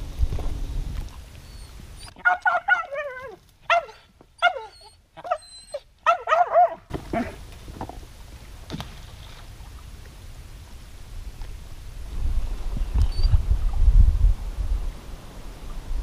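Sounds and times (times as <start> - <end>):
dog whining: 1.5 - 7.4.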